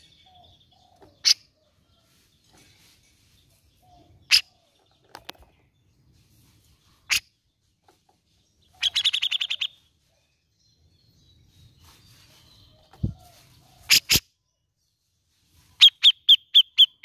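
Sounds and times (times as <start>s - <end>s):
bulbul calling: 8.7s - 9.8s.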